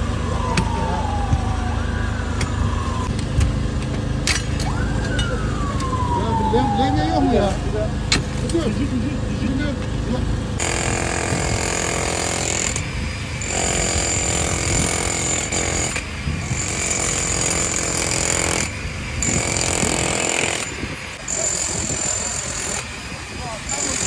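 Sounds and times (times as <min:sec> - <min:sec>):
demolition hammer chiselling concrete: 0:10.6 - 0:12.8, 0:13.4 - 0:24.0.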